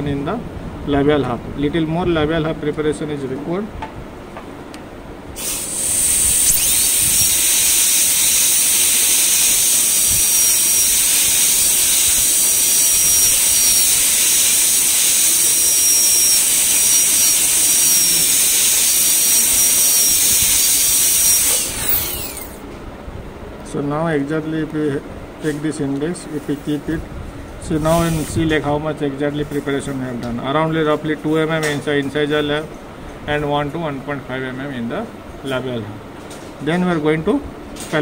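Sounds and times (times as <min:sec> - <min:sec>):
air hissing: 0:05.4 - 0:22.6
dental drill whining: 0:05.4 - 0:22.6.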